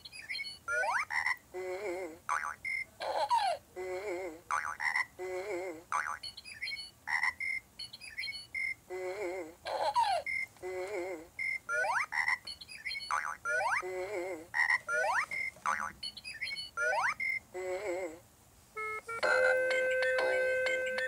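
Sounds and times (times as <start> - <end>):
electronic toy sound effects: 0.1 - 1.4, 11.4 - 13.9, 14.6 - 17.4, 18.8 - 21.0.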